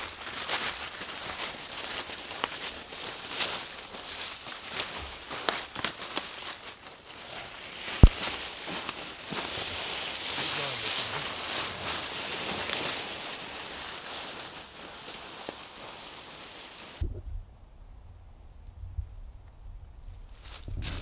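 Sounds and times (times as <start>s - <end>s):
footsteps through dry leaves: 0.0s - 17.0s
low rumble: 17.0s - 21.0s.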